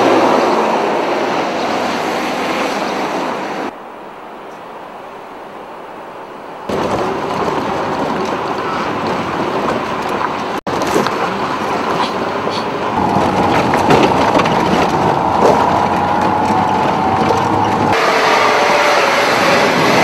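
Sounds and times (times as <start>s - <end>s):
off-road vehicle driving on dirt: 6.6s - 20.0s
rattling: 6.7s - 18.0s.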